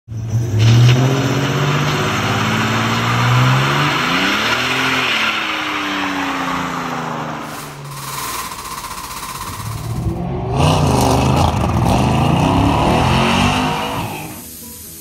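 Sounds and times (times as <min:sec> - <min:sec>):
car engine revving hard: 0:00.3 - 0:08.6, 0:09.4 - 0:14.4
tyres squealing on pavement: 0:00.5 - 0:09.8.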